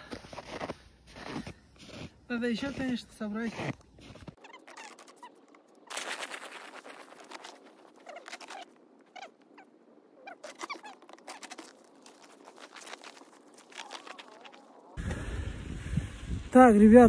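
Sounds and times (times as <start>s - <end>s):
footsteps crunching in snow: 0.0s - 9.6s, 10.2s - 15.0s
nylon tent rustling: 4.0s - 8.7s, 10.4s - 15.0s.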